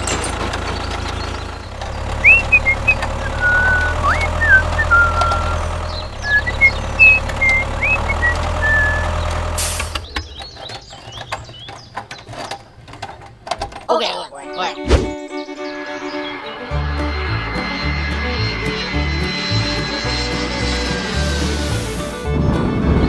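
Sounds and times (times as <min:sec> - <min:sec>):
tractor engine running: 0:00.0 - 0:13.9, 0:15.2 - 0:23.0
high whistling chirps: 0:02.1 - 0:09.3, 0:15.1 - 0:22.0.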